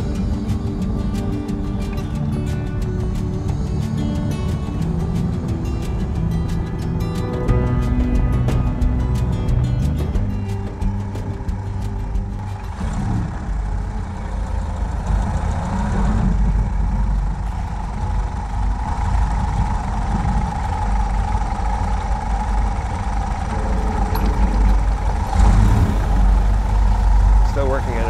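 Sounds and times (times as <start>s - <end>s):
car engine low rumble: 0.0s - 28.0s.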